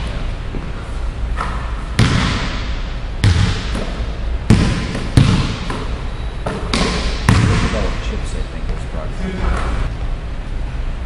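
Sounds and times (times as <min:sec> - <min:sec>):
basketball bouncing on wooden floor: 0:02.0 - 0:02.6, 0:03.2 - 0:07.8.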